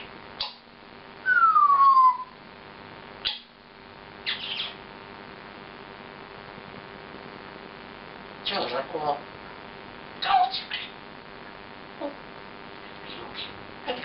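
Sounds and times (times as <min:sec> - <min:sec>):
parrot whistling: 0:01.2 - 0:02.4
parrot squawks: 0:03.2 - 0:03.5, 0:04.2 - 0:04.8, 0:10.2 - 0:11.0, 0:12.8 - 0:14.0.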